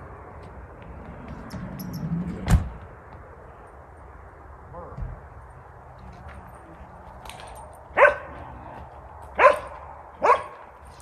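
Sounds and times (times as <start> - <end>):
dog barking: 8.0 - 8.4, 9.4 - 10.6.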